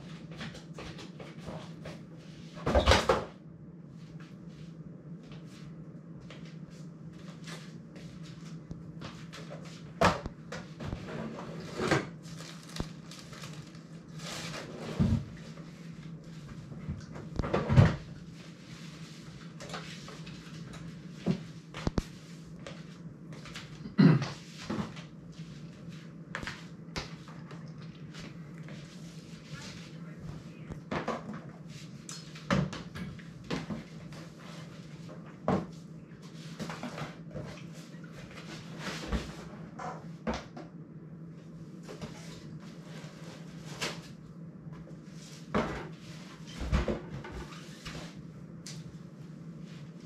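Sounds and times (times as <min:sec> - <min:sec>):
steady low hum: 0:00.0 - 0:50.0
drawer and cupboard opening and closing: 0:10.8 - 0:12.2, 0:14.3 - 0:15.4, 0:17.3 - 0:18.1.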